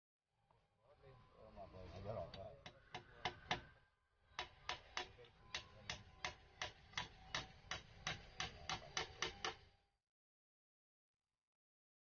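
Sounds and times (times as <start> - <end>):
hand tool striking bamboo: 2.7 - 3.7, 4.4 - 9.6.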